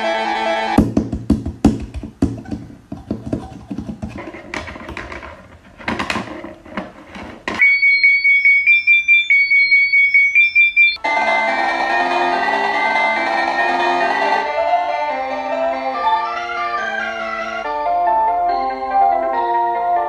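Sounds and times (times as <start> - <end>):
clicks and knocks: 0.8 - 7.7
high electronic beeping alarm: 7.6 - 11.6.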